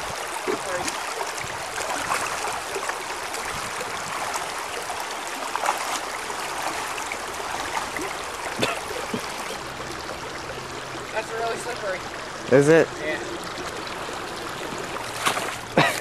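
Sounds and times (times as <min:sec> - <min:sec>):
creek water running over rocks: 0:00.0 - 0:16.0
splashing steps in water: 0:00.4 - 0:04.5, 0:05.4 - 0:09.6, 0:14.7 - 0:16.0.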